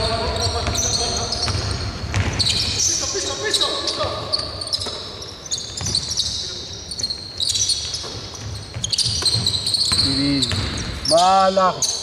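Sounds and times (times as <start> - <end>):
sneaker squeaks: 0.0 - 12.0
basketball bouncing on hardwood: 0.6 - 2.5.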